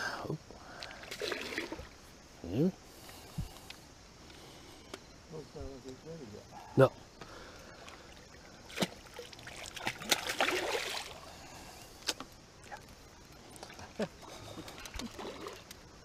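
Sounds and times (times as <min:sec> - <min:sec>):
fish splashing in water: 0:01.0 - 0:01.9, 0:07.8 - 0:11.2.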